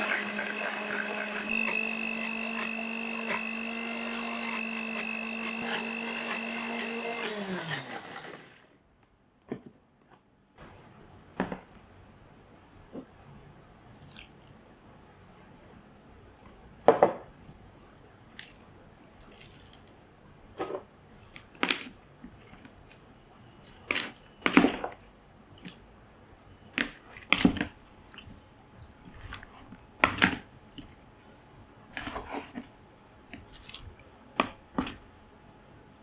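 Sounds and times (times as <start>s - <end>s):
wet squelches of meat: 28.1s - 29.8s.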